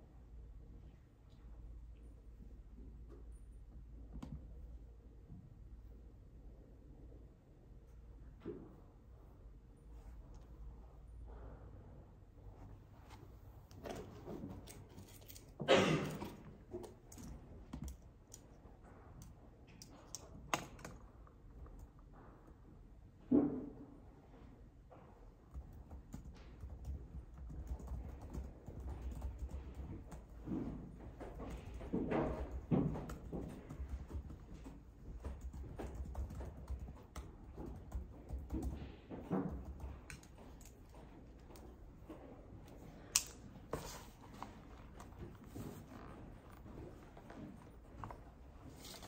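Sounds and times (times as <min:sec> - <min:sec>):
typing on laptop keyboard: 0:25.5 - 0:30.5, 0:31.4 - 0:40.9.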